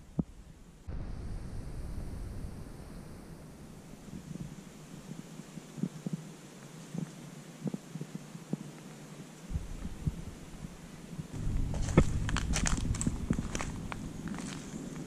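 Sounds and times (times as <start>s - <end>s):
footsteps on a trail: 11.4s - 15.0s.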